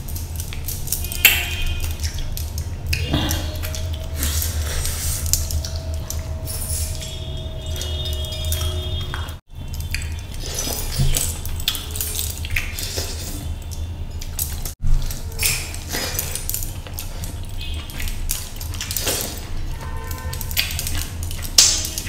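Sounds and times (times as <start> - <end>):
fingers squishing food: 0.0 - 22.0
steady low hum: 0.0 - 22.0
wet chewing and lip smacking: 0.0 - 22.0.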